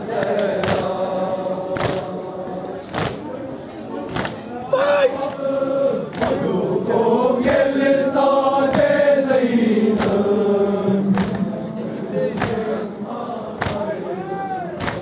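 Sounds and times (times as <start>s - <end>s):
men chanting together: 0.0s - 15.0s.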